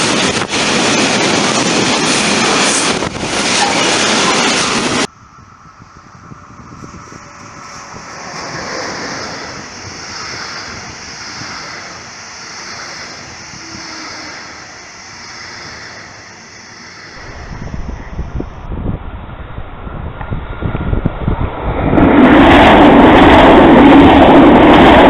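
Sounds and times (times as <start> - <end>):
train wheels rushing on rails: 0.0 - 5.1, 6.1 - 18.7
wind buffeting microphone: 0.0 - 16.2, 17.0 - 25.0.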